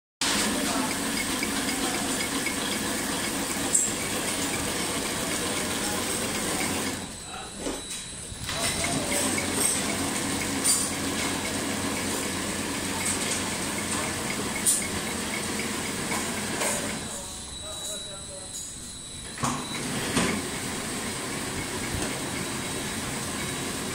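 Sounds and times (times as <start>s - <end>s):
sharp machine clicks: 0.3s - 7.1s, 8.5s - 17.1s
packing machine clattering: 8.4s - 17.0s.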